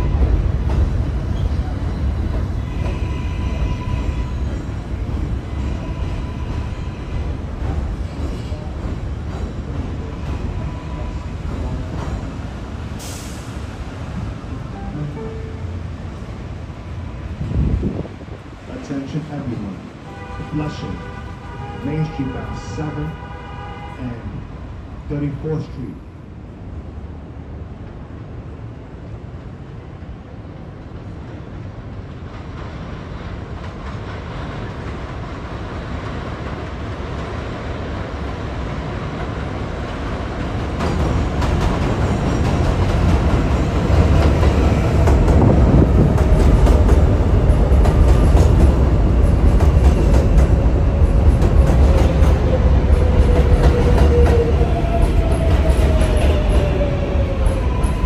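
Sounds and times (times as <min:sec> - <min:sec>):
subway train rumble: 0:00.0 - 0:58.0.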